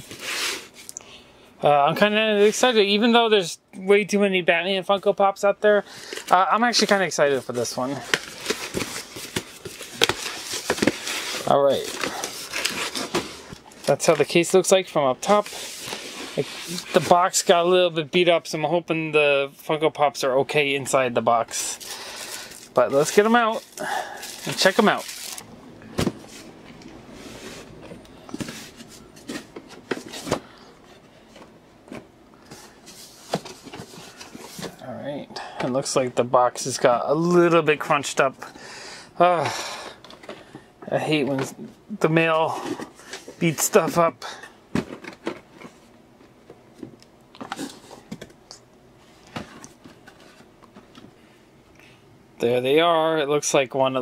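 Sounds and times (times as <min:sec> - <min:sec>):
cardboard rustling: 0:06.0 - 0:14.5, 0:21.5 - 0:26.5
cardboard boxes tapping and rustling: 0:08.0 - 0:11.2.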